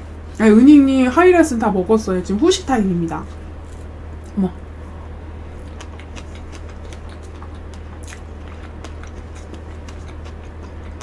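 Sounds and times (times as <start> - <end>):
steady low hum: 0.0 - 11.0
person chewing: 5.5 - 11.0
mouth clicks and smacks: 5.6 - 11.0.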